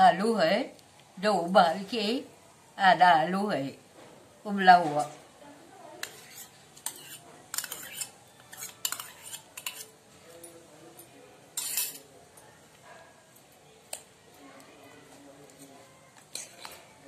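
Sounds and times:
spoon scraping bowl: 0:06.0 - 0:10.0, 0:11.6 - 0:12.1, 0:15.5 - 0:17.0
metal spoon clinking on bowls: 0:06.0 - 0:12.1, 0:15.6 - 0:17.0.

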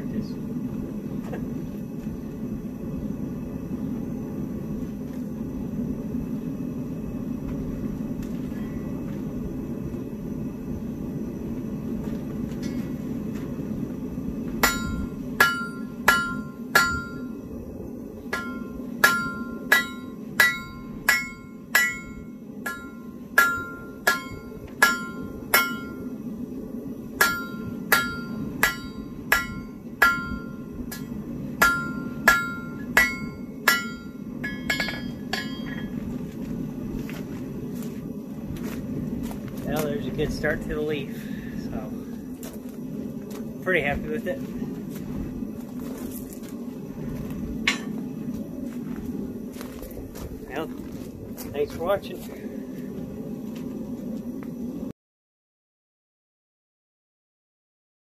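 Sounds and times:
forge burners roaring: 0:00.0 - 0:54.9
hammer striking steel on anvil: 0:14.6 - 0:17.3, 0:18.3 - 0:26.1, 0:27.2 - 0:36.0, 0:47.7 - 0:48.0.

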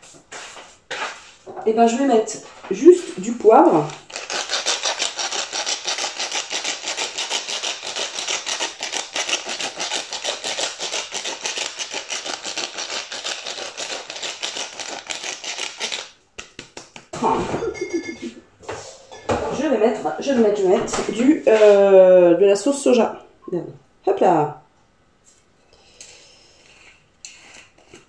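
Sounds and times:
pepper mill grinding: 0:03.4 - 0:16.5.

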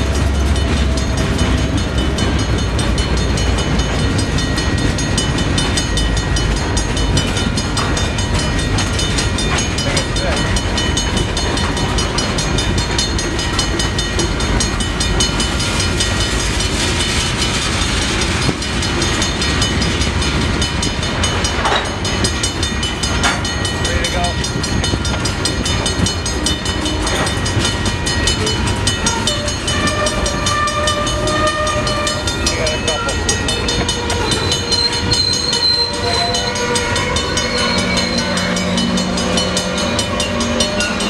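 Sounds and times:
crossing bell dinging: 0:00.0 - 0:41.0
freight train wheels rumbling: 0:00.0 - 0:41.0.

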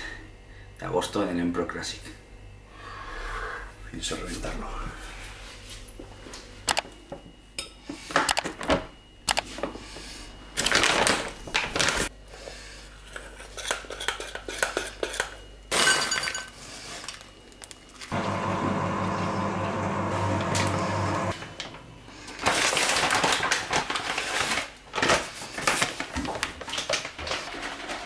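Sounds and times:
steady hum: 0:00.0 - 0:13.0, 0:18.1 - 0:22.4.

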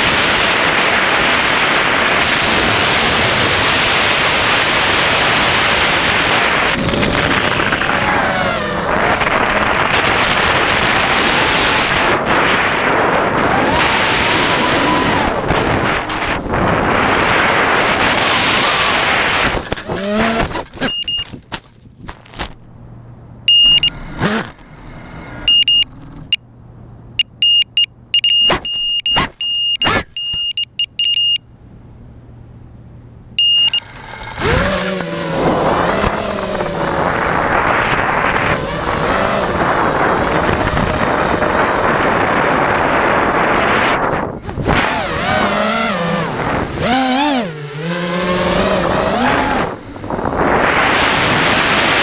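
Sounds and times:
drone motors whining: 0:13.2 - 0:21.3, 0:23.5 - 0:26.4
short high beeps: 0:20.8 - 0:21.3, 0:23.5 - 0:24.0, 0:25.5 - 0:26.4, 0:27.2 - 0:31.6, 0:33.4 - 0:33.9.

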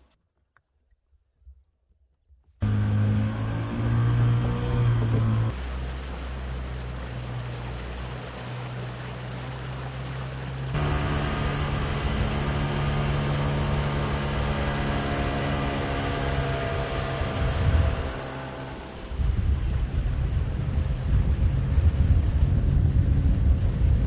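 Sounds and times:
outboard motor running: 0:02.6 - 0:24.0
water noise: 0:02.6 - 0:24.0
wind noise: 0:10.7 - 0:24.0.

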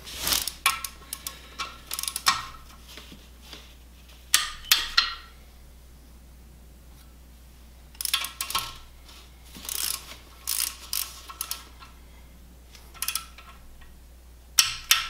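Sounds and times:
torque wrench ratchet clicking: 0:00.4 - 0:02.5, 0:08.0 - 0:08.8, 0:09.7 - 0:11.7, 0:13.0 - 0:13.5.

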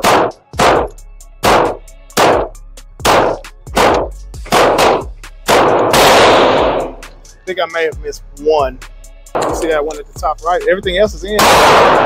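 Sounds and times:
handgun shots echoing: 0:00.0 - 0:07.0, 0:11.4 - 0:12.0.

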